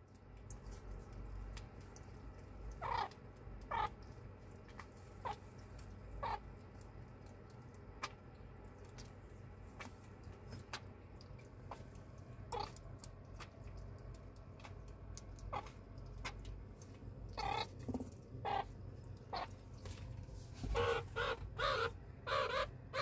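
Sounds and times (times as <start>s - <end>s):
soft feeding clicks: 0.0s - 21.6s
baby meerkat chirping calls: 2.8s - 4.0s, 5.2s - 5.4s, 6.2s - 6.5s, 12.5s - 12.8s, 15.5s - 15.8s, 17.4s - 17.8s, 18.4s - 18.7s, 19.3s - 19.5s, 20.7s - 23.0s.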